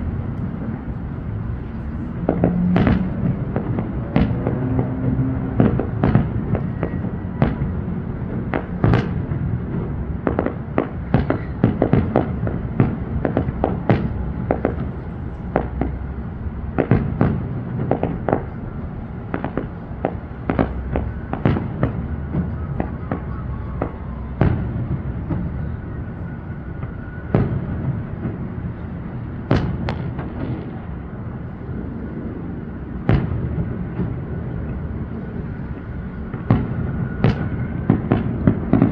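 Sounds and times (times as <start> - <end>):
low background rumble: 0.0 - 26.8
firework bangs and crackling: 0.0 - 38.9.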